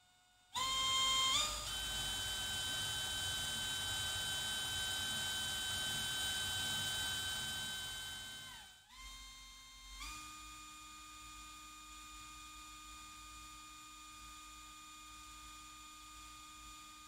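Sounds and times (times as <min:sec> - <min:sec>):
cordless drill whining: 0:00.6 - 0:13.2.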